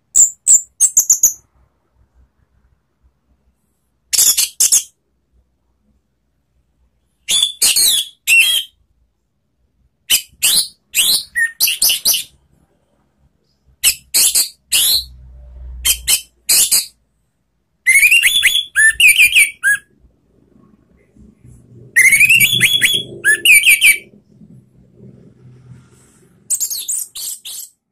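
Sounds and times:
bird twittering song: 17.9s - 19.8s, 22.0s - 24.1s.

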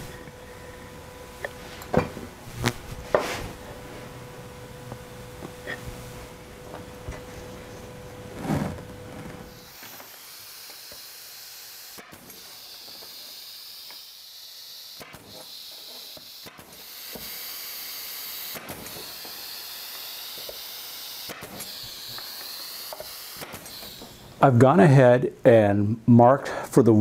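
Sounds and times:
nail gun firing into wood: 11.9s - 14.0s, 14.9s - 24.2s.

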